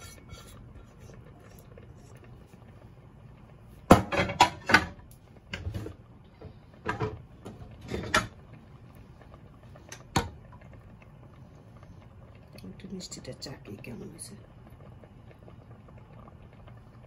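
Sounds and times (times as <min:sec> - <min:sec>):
kitchen knocks and clacks: 0:03.9 - 0:05.9.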